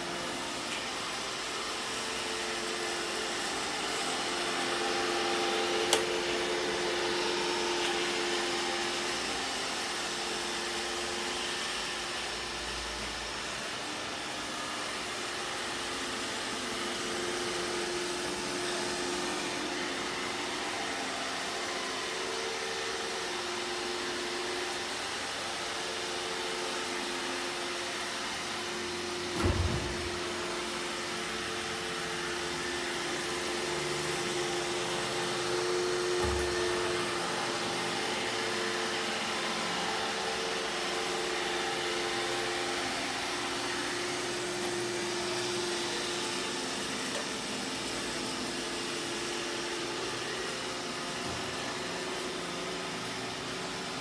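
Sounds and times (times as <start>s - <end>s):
thump: 29.4s - 30.2s, 36.2s - 36.8s.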